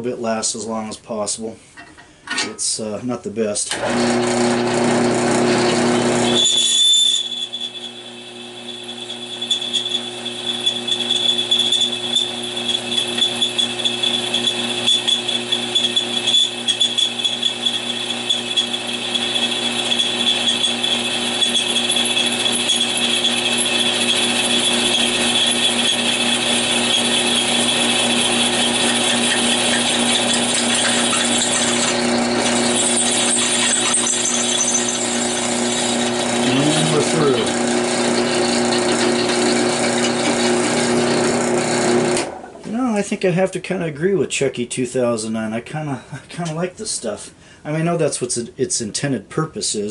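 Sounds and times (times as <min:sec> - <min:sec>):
drill bit grinding steel: 0:03.7 - 0:42.3
drill press motor hum: 0:03.7 - 0:42.4.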